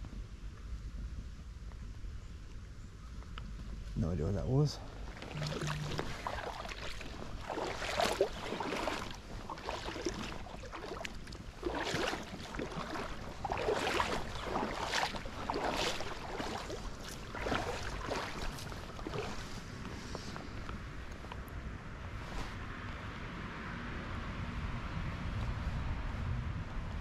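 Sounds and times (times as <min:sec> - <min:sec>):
wind rumble on microphone: 0:00.0 - 0:27.0
water sloshing and splashing: 0:04.8 - 0:21.4.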